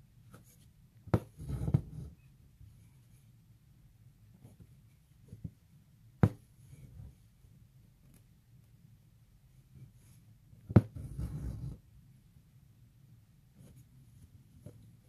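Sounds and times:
needle tapping on taut fabric: 6.2 - 6.5.

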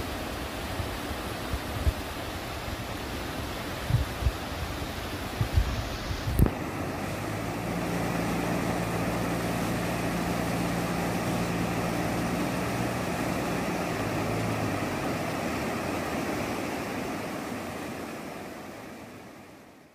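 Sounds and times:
floodwater rushing over gravel: 0.0 - 19.2
low steady hum: 5.4 - 19.8.

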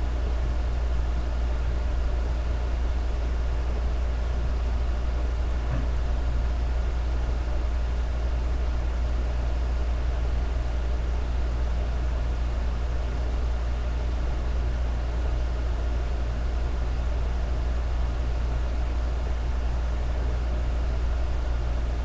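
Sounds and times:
low electrical hum: 0.0 - 22.0
faint knock: 5.6 - 6.0.

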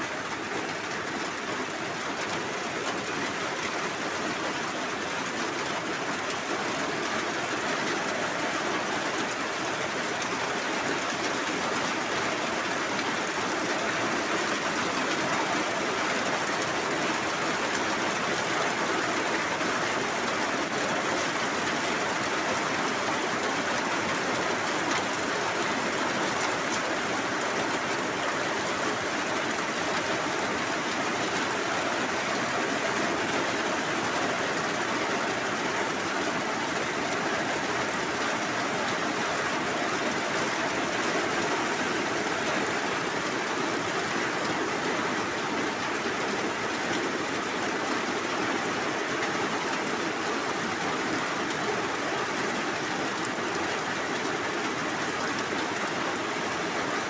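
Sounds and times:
heavy rain on metal roof: 0.0 - 57.0.

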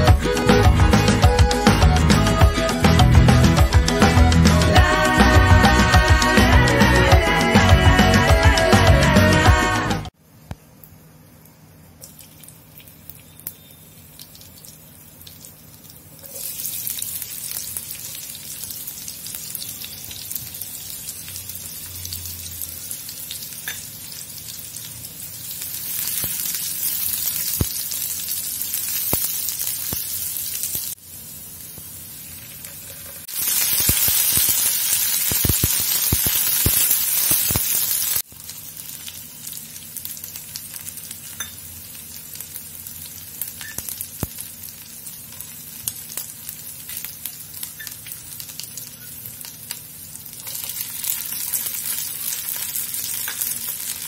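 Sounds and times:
onion sizzling in hot oil: 10.8 - 54.0.

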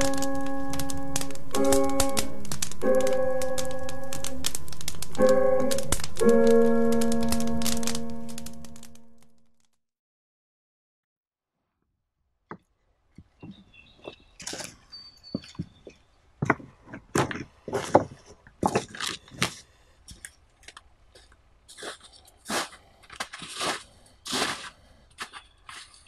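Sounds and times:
footsteps crunching through snow: 21.2 - 26.0.

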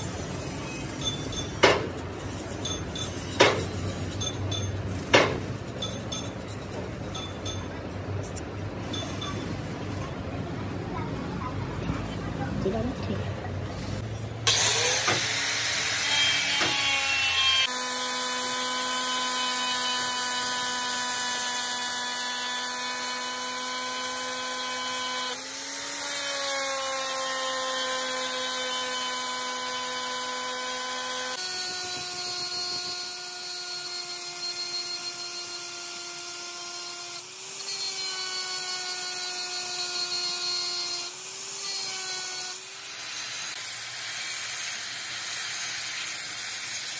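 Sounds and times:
angle grinder grinding metal: 13.8 - 46.9.

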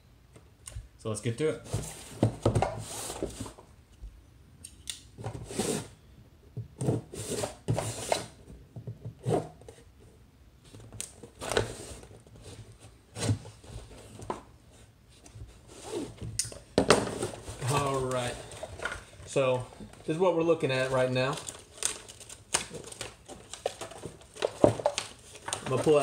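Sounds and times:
boxes rustling as pulled open: 1.6 - 3.7, 5.2 - 6.0, 17.0 - 26.0.

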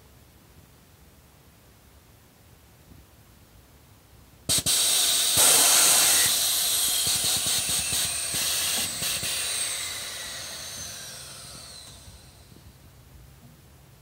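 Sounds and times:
air suspension hissing: 4.5 - 12.7.

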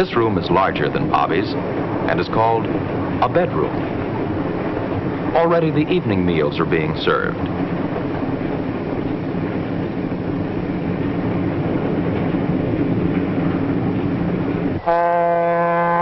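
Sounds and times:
train rumbling on track: 0.0 - 16.0
locomotive horn chord: 14.8 - 16.0.

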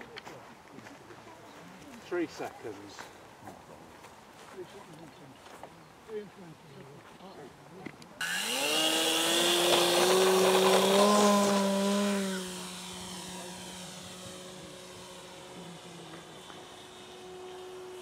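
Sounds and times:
model plane motor whining: 8.2 - 18.0.

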